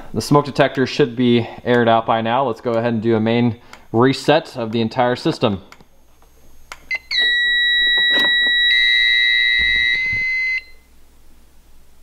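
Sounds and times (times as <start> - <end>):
buzzy alarm tone: 5.9 - 10.9
high-pitched alarm beep: 6.9 - 10.9.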